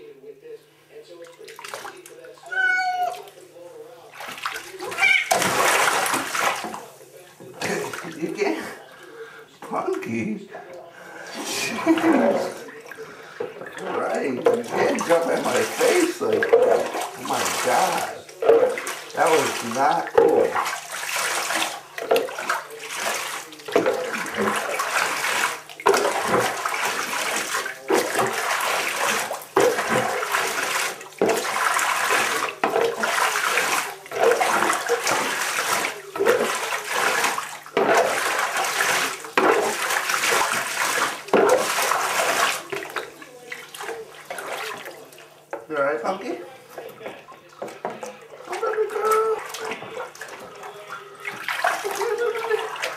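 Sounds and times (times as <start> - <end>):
bath water splashing: 1.0 - 52.9.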